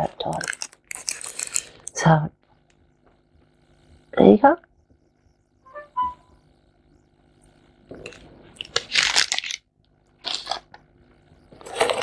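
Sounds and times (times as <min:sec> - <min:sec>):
packaging crinkling: 0:00.0 - 0:02.0, 0:08.0 - 0:10.8, 0:11.6 - 0:12.0.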